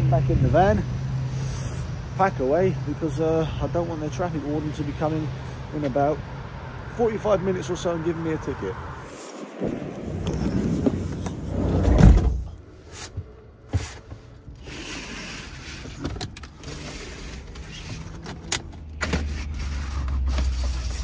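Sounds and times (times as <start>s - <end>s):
van door shutting with a thud: 11.6s - 12.6s.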